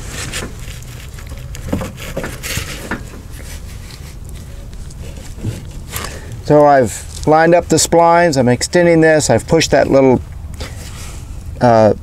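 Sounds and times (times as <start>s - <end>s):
metal clicks and scrapes: 0.0s - 7.3s
low steady hum: 0.0s - 12.0s.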